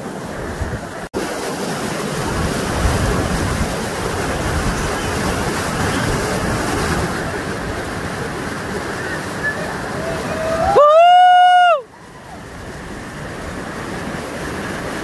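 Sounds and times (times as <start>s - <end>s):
river rapids rushing: 0.0s - 15.0s.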